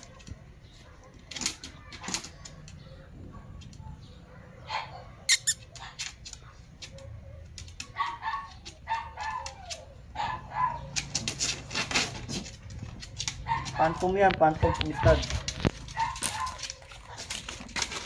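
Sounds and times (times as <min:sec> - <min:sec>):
small dogs whimpering: 0:05.2 - 0:06.0, 0:08.1 - 0:10.7
rustling and flapping: 0:10.9 - 0:18.0.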